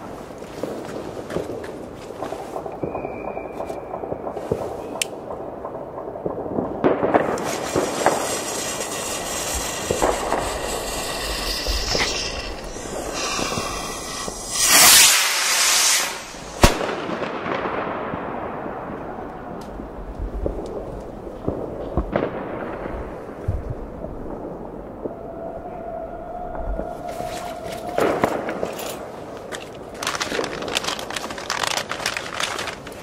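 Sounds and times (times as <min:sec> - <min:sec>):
fireworks crackling and popping: 0:00.0 - 0:25.2, 0:26.5 - 0:33.0
firework bang: 0:06.2 - 0:19.0
firework fuse sizzling: 0:07.0 - 0:17.6, 0:27.0 - 0:33.0
rocket launching with rushing hiss: 0:07.0 - 0:17.8.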